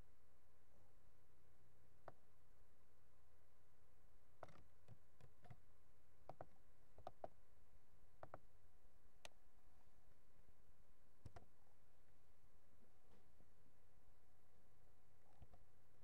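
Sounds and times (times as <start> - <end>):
low steady background: 0.0 - 16.0
laptop keys and mouse clicks: 4.4 - 5.6, 6.3 - 7.4, 11.2 - 11.5.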